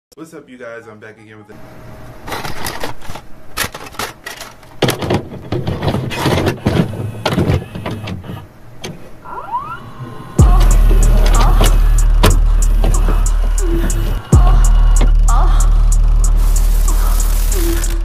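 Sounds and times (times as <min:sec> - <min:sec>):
mechanical whirring: 0:05.6 - 0:18.0
rising squeals: 0:09.2 - 0:18.0
loud low hum: 0:09.8 - 0:18.0
glitch clicks and crackles: 0:10.4 - 0:18.0.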